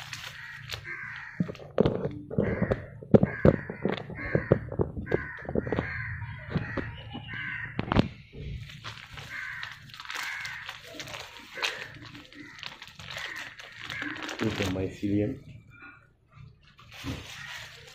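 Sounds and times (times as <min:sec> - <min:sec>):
bird calling in harsh bursts: 0:00.0 - 0:01.5, 0:09.0 - 0:14.9
plastic crackling and knocking: 0:00.0 - 0:15.0, 0:16.7 - 0:17.9.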